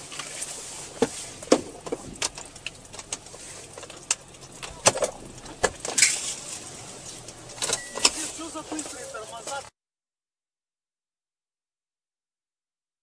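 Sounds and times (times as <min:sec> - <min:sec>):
faint engine and road hum: 0:00.0 - 0:09.7
raindrops tapping on windshield: 0:00.0 - 0:09.7.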